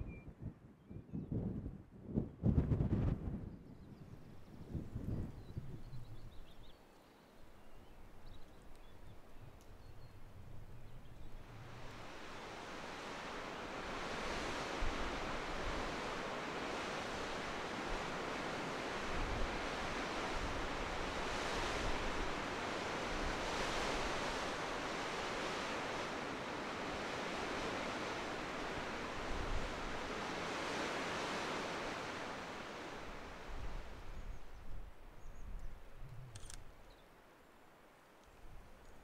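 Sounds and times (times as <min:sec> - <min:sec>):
wind buffeting microphone: 0:00.0 - 0:06.7, 0:08.2 - 0:36.8
strong wind through trees: 0:00.0 - 0:39.0.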